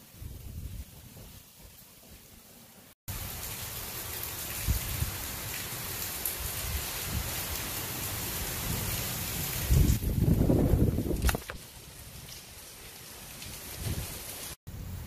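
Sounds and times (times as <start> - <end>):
heavy rain hissing: 0.0 - 15.0
strong wind rumbling: 0.2 - 1.4, 9.5 - 11.6.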